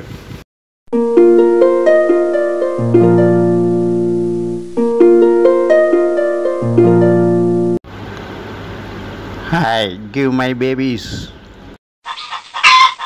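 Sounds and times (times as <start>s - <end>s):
low held bass notes: 0.9s - 7.8s
plucked string melody: 0.9s - 7.8s.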